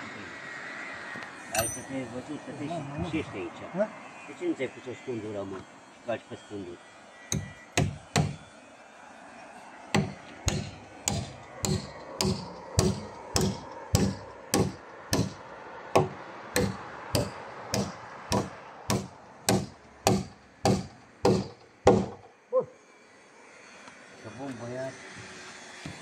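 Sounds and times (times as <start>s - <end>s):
hammer blows on wood: 9.9s - 15.4s, 16.0s - 22.3s.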